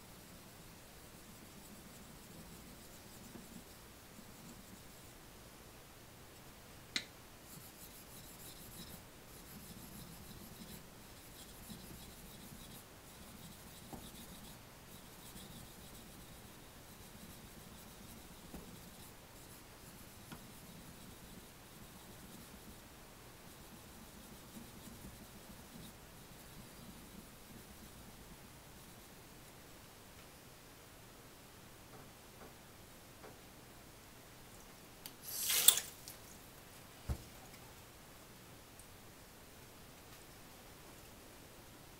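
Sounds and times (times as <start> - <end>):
blade scraping on whetstone: 35.3 - 35.9.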